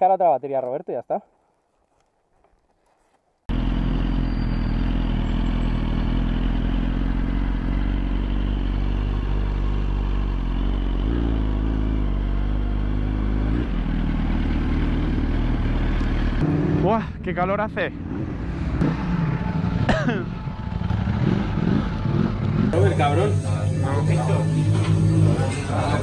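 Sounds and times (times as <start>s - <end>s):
road noise: 1.9s - 26.0s
motorcycle engine running: 3.5s - 17.2s, 18.0s - 26.0s.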